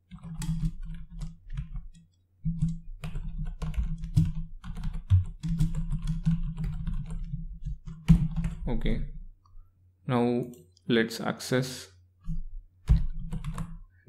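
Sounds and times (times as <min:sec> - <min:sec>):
typing on computer keyboard: 0:00.0 - 0:08.7, 0:12.3 - 0:13.8.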